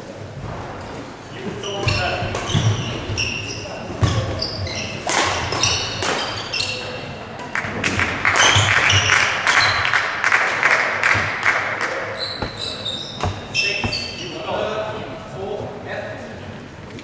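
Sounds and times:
shoes squeaking on court floor: 1.4 - 7.4, 8.3 - 10.0, 11.1 - 14.7
rackets striking shuttlecock: 4.9 - 6.5, 10.5 - 14.2.

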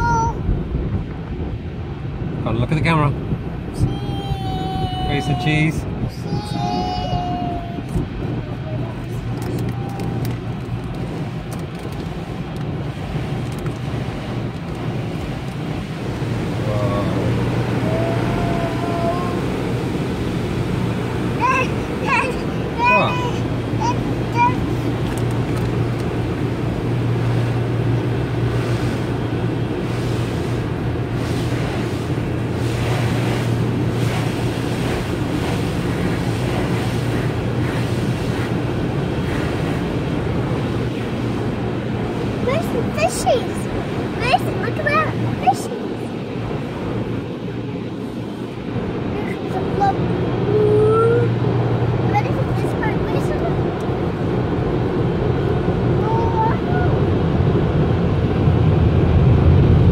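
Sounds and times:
water jets spraying on car: 1.1 - 59.9
water spray on car body: 23.5 - 45.6.

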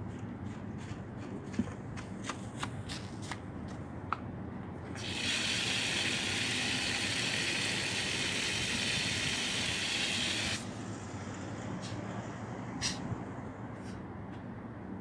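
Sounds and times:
water spraying from nozzle: 5.0 - 10.6.

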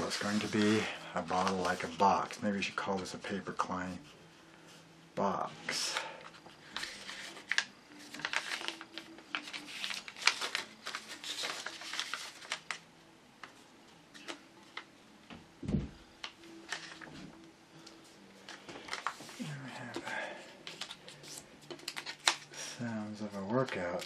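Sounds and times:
paper rustling and crinkling: 0.0 - 4.1, 5.6 - 12.8, 16.2 - 17.4, 18.4 - 24.0.

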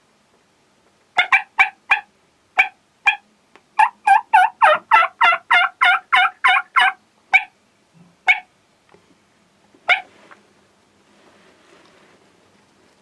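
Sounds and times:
wild turkeys calling: 1.2 - 3.2, 3.8 - 7.5, 8.3 - 8.5, 9.9 - 10.1.

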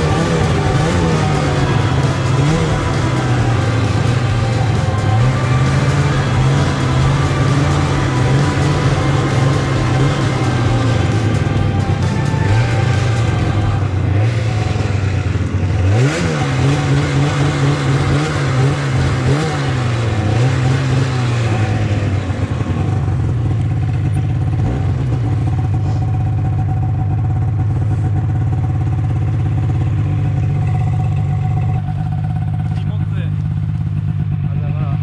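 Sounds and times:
snowmobile engine revving: 0.0 - 26.7.

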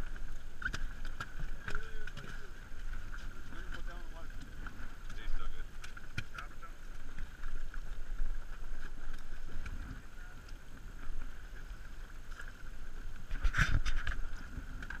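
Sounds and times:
fishing boat ambient noise: 0.0 - 15.0
wind buffeting microphone: 12.9 - 15.0.

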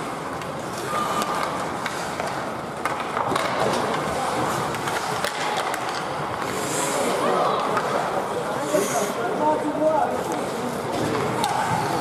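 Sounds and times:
skates scraping ice: 0.0 - 12.0
hockey sticks clacking on puck: 0.1 - 6.8, 7.6 - 8.1, 10.2 - 12.0.

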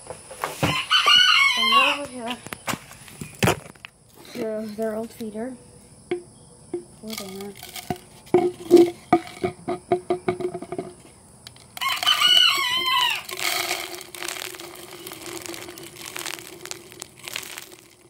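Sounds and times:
rooster crowing: 0.6 - 2.1, 11.8 - 13.4
feed pellets poured into feeder: 7.1 - 8.0, 11.8 - 18.0.

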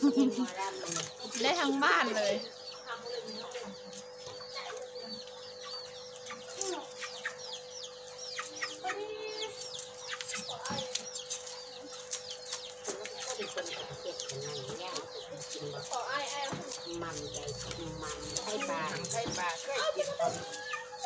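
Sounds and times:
chickens clucking and chirping: 0.0 - 21.0.

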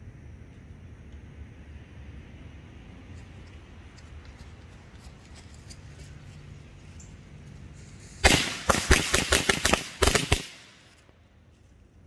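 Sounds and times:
firecrackers banging: 8.0 - 11.0.

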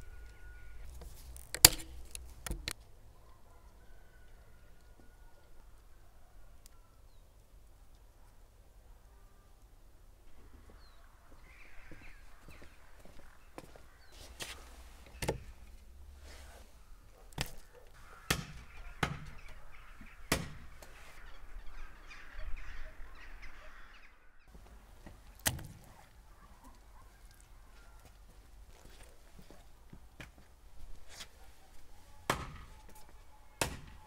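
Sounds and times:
crows cawing: 0.0 - 1.0, 10.3 - 15.7, 16.8 - 24.5, 26.3 - 29.0.

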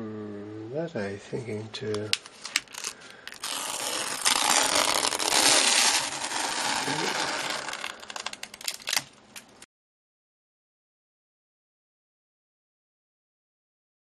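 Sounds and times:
tape peeling off canvas: 2.2 - 9.6.

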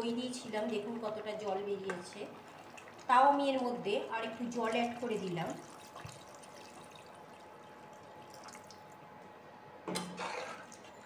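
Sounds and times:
water trickling into pan: 0.5 - 9.0.

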